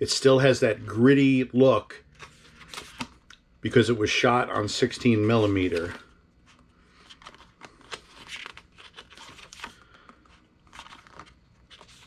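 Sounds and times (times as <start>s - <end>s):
pages turning rustling: 2.1s - 3.4s, 4.9s - 12.0s.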